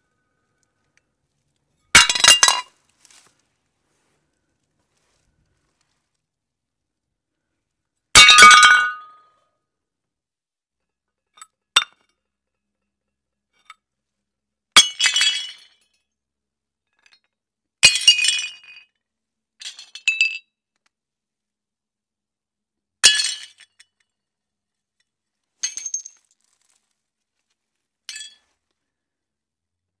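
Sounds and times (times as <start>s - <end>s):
plates smashing: 2.0s - 2.7s.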